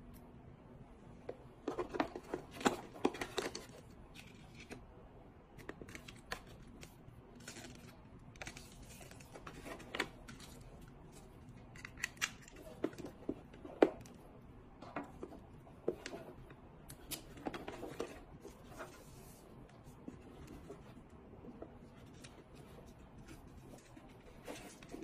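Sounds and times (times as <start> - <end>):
cable rustling: 14.9 - 25.0.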